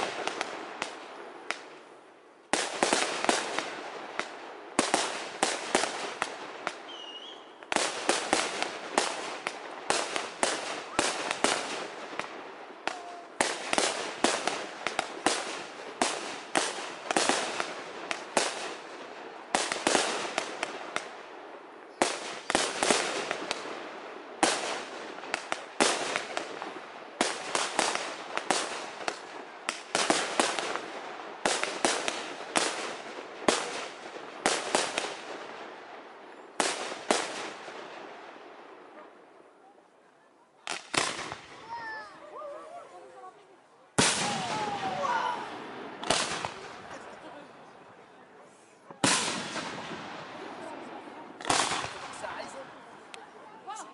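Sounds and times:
fireworks bursting with sharp bangs: 0:00.0 - 0:39.4, 0:40.6 - 0:42.4, 0:43.9 - 0:53.9.

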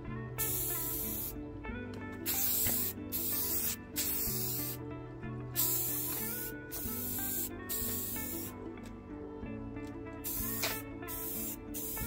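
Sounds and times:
spray paint can hissing: 0:00.4 - 0:01.4, 0:02.2 - 0:04.8, 0:05.6 - 0:08.6, 0:10.2 - 0:12.0.

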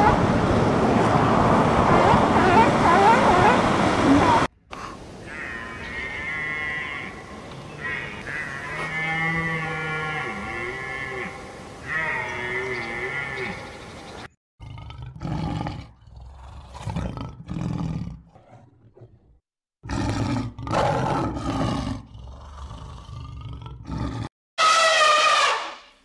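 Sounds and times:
lion roaring and grunting: 0:14.6 - 0:19.2, 0:19.8 - 0:24.3
elephant trumpeting: 0:24.6 - 0:26.0.

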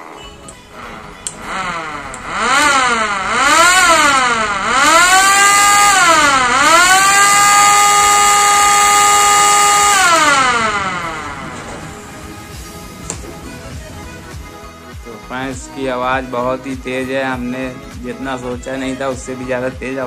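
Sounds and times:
motor siren wailing: 0:00.0 - 0:14.9.

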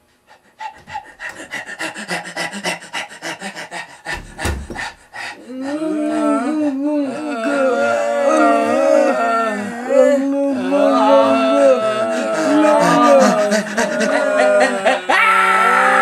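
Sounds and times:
raspy panting breaths: 0:00.0 - 0:06.4, 0:12.0 - 0:15.0
voices moaning and howling: 0:03.4 - 0:16.0
low thump: 0:04.1 - 0:05.0.

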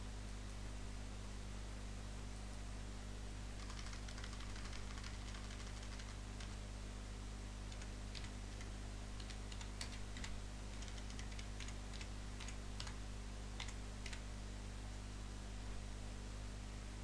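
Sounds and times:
low electrical hum and hiss: 0:00.0 - 0:17.0
keyboard keys clicking: 0:03.6 - 0:06.6, 0:07.7 - 0:13.0, 0:13.6 - 0:14.2.

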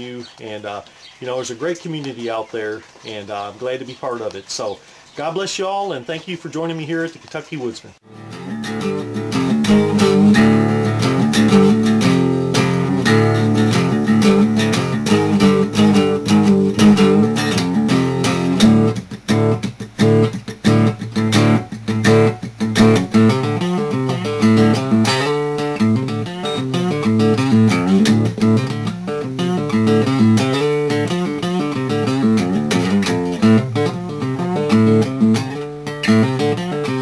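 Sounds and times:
picked guitar tune: 0:08.0 - 0:37.0.

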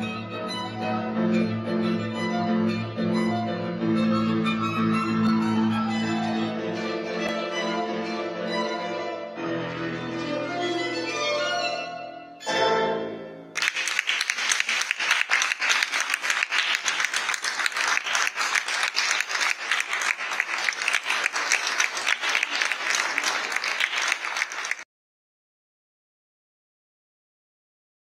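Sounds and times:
audience applauding: 0:13.6 - 0:24.9.

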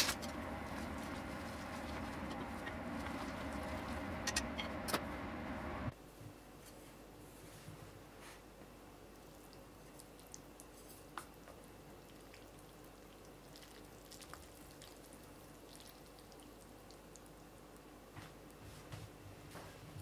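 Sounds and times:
wet drips of noodle broth: 0:09.1 - 0:17.9.

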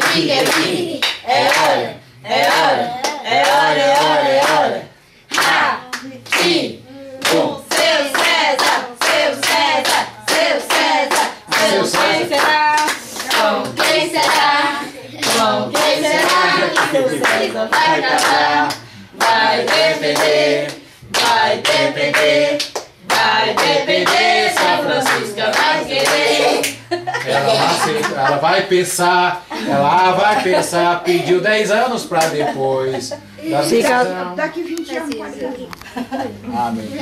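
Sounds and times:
people clapping in rhythm: 0:00.0 - 0:26.9, 0:32.1 - 0:32.4
group singing a chant: 0:00.0 - 0:28.8.

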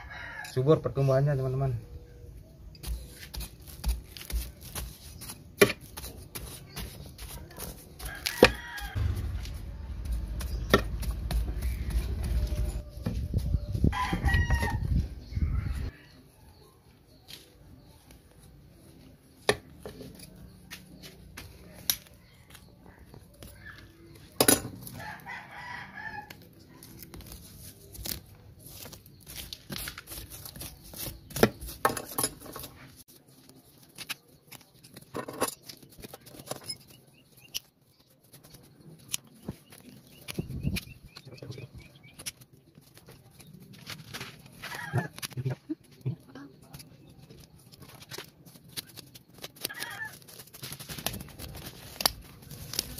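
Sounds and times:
shears snipping: 0:02.8 - 0:12.7, 0:26.3 - 0:31.9, 0:46.6 - 0:52.9
hook scraping through roots: 0:46.6 - 0:52.9.

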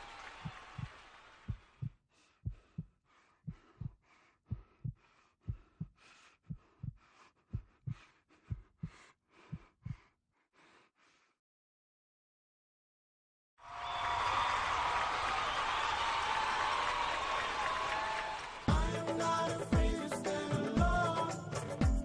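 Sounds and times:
heartbeat thumps: 0:00.4 - 0:00.9, 0:01.5 - 0:10.1, 0:18.7 - 0:19.0, 0:19.8 - 0:20.1.

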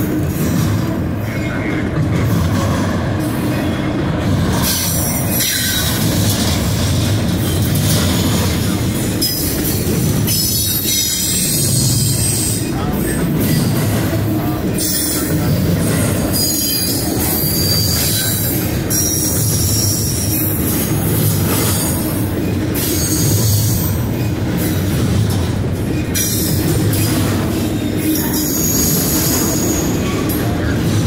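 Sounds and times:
freight train wheels rumbling: 0:00.0 - 0:31.0
high-pitched wheel squeal: 0:16.3 - 0:20.5, 0:28.2 - 0:30.1.

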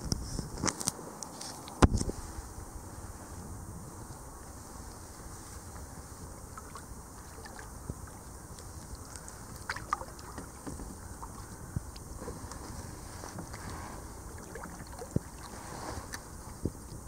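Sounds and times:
low rush of wind and water: 0:00.0 - 0:17.0
river ice crackling and clicking: 0:06.5 - 0:15.5.

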